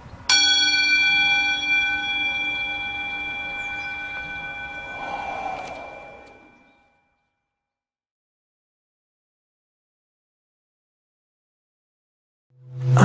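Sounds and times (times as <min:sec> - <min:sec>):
metal bell ringing: 0:00.3 - 0:06.8.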